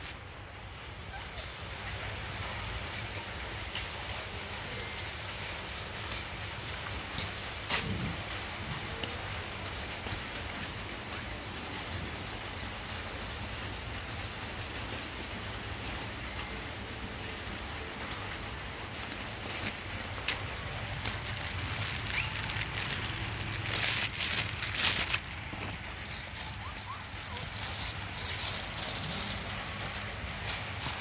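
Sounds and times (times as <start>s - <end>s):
rain-like hiss: 0.0s - 31.0s
plastic food bag crackling: 12.7s - 31.0s.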